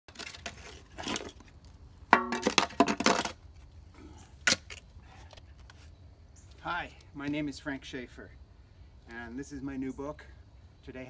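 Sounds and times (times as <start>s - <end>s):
shovel scraping dirt: 0.1s - 1.6s.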